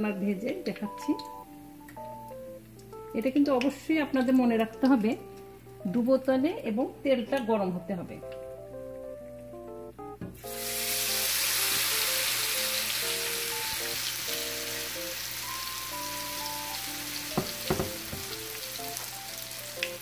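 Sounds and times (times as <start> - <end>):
batter deep-frying in hot oil: 10.4 - 20.0.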